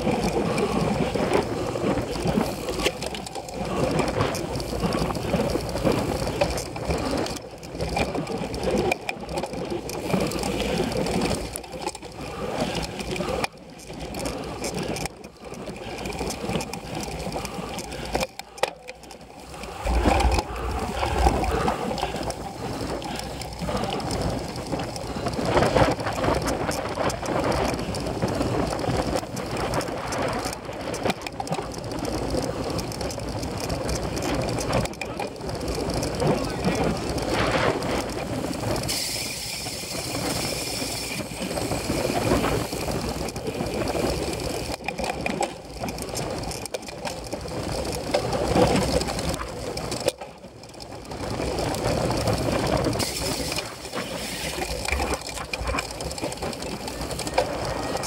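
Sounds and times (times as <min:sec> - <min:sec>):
bike rattling over rough ground: 0:00.0 - 0:58.0.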